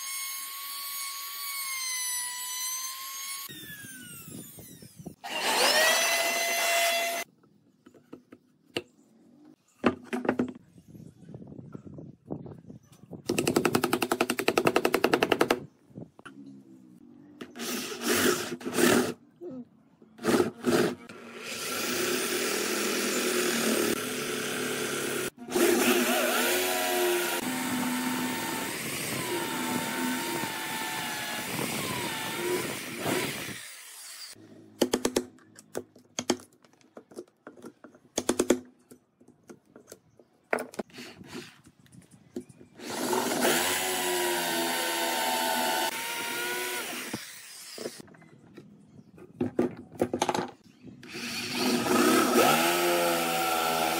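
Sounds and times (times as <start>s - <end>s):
electric drill boring into wood: 0.0s - 7.3s, 20.2s - 34.4s, 42.8s - 48.0s, 51.0s - 53.9s.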